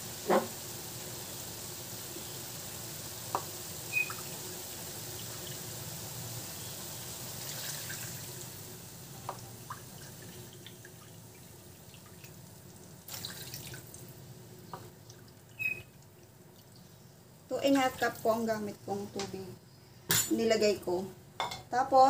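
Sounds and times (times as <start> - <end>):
water pouring into wok: 3.7 - 8.9, 13.0 - 14.1.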